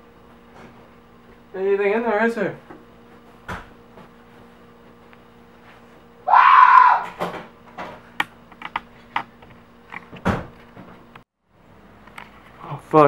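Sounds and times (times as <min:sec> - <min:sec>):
steady low hum: 0:00.0 - 0:06.6
loud scream: 0:06.2 - 0:07.2.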